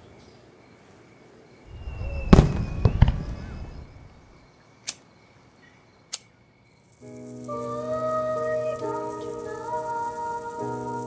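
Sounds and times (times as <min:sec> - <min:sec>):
firework cracks: 0:01.7 - 0:04.3
fireworks rumbling burst: 0:01.7 - 0:04.4.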